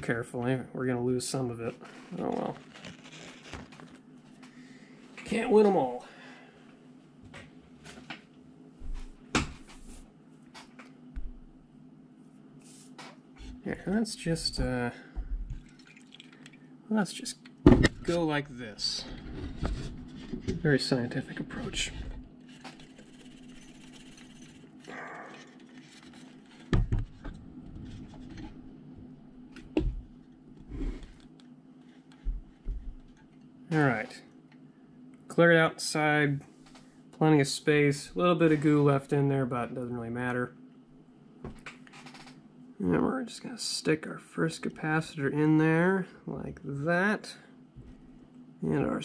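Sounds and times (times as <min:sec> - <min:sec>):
faint steady hum: 0:00.0 - 0:49.0
tools rustling and scraping: 0:21.9 - 0:28.6.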